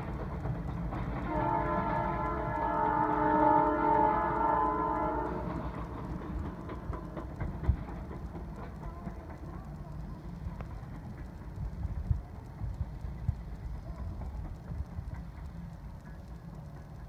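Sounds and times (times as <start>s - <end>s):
faint wheel clicks: 0.0s - 17.0s
rumble of passing train: 0.0s - 17.0s
train horn: 1.2s - 5.7s.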